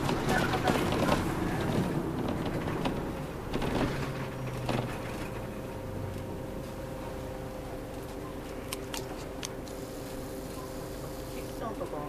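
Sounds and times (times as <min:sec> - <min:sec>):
cabin rattles and knocks: 0:00.0 - 0:05.4
bus engine and road hum: 0:00.0 - 0:12.0
thin steady whine: 0:05.4 - 0:12.0.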